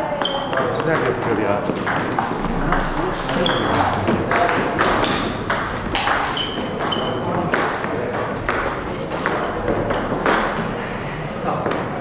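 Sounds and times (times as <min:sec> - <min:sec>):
table tennis balls clicking: 0:04.3 - 0:10.6.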